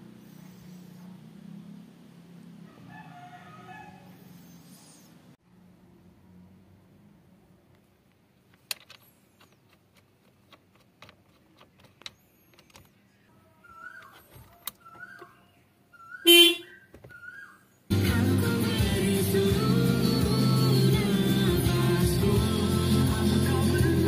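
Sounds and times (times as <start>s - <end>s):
car horn blast: 16.3s - 16.8s.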